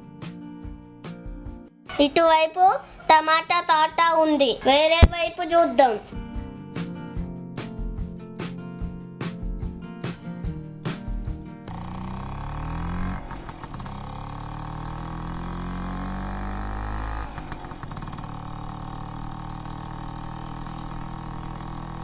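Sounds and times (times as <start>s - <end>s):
motor scooter engine revving: 11.6s - 22.0s.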